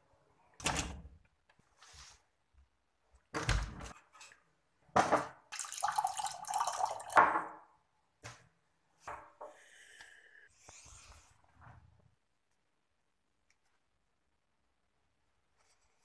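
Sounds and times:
water pouring into a mug: 0:05.5 - 0:07.2.

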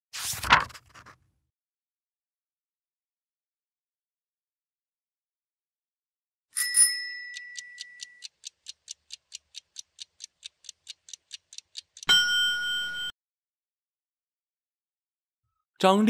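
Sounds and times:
chime ringing: 0:06.6 - 0:08.2, 0:12.1 - 0:13.1
rapid clock ticks: 0:07.2 - 0:13.0.

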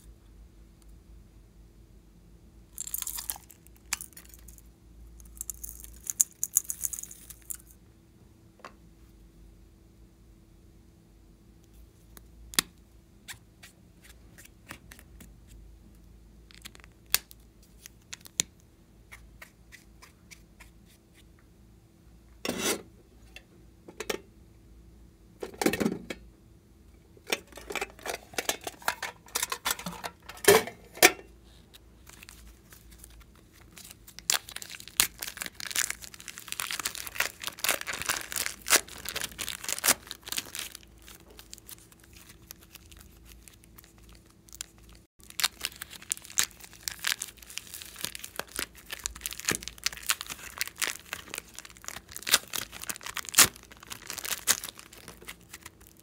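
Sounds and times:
plastic bag crinkling: 0:32.0 - 0:56.0.

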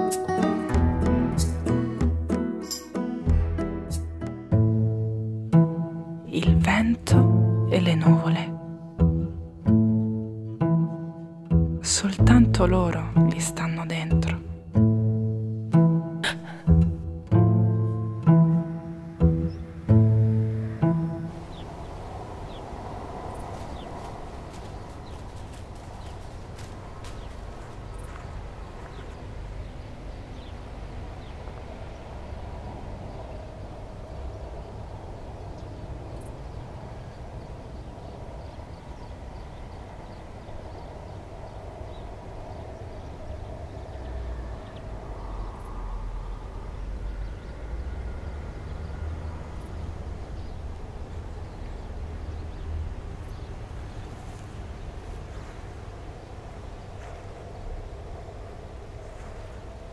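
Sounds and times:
wind gusting: 0:00.0 - 0:59.9
steady low rumble: 0:03.4 - 0:59.9
small birds chirping: 0:17.7 - 0:59.9.

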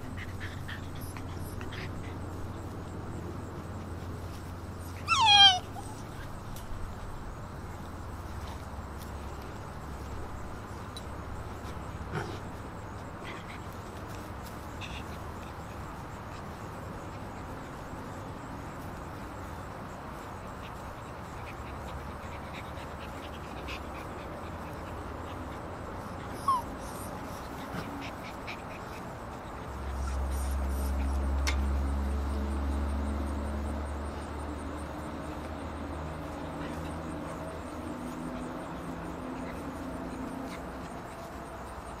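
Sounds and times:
puppy squeaks: 0:04.8 - 0:06.3, 0:26.2 - 0:27.4, 0:29.9 - 0:31.2
puppy yelp: 0:04.8 - 0:06.4, 0:26.0 - 0:31.6.

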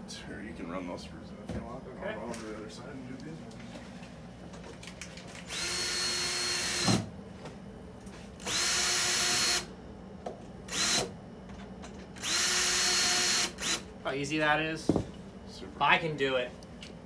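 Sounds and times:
cordless drill driving screws: 0:05.4 - 0:07.0, 0:08.4 - 0:09.7, 0:10.7 - 0:11.1, 0:12.2 - 0:13.8.

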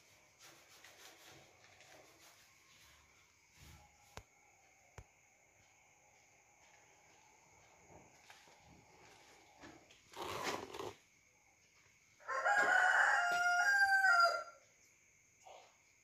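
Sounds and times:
rooster crowing: 0:12.2 - 0:14.7.

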